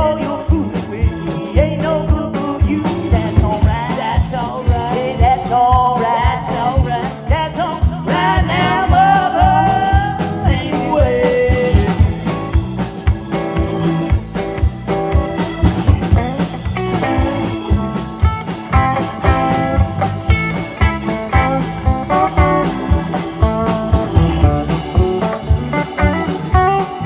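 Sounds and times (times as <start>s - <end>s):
live blues-rock band: 0.0s - 27.0s
sliding lead guitar line: 0.0s - 27.0s.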